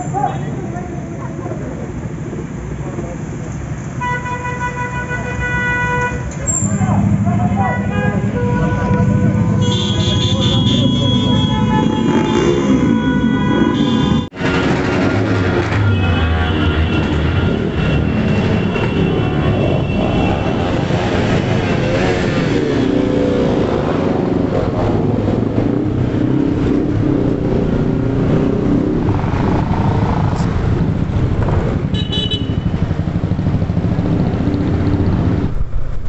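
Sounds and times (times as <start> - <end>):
horn honks: 4.0 - 14.8, 15.6 - 22.1, 31.9 - 32.9
motorcycles revving past: 11.0 - 15.8, 17.0 - 31.9.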